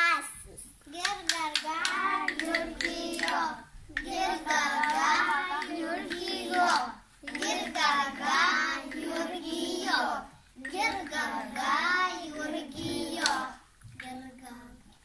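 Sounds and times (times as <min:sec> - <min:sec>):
children singing in unison: 0:01.6 - 0:13.7.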